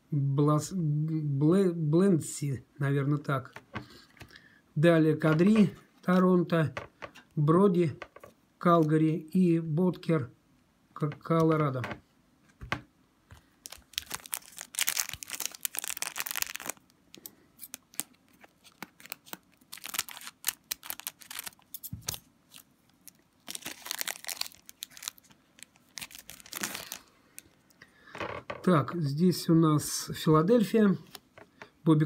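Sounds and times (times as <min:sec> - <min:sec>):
foil wrapper tearing and crinkling: 0:13.6 - 0:27.1.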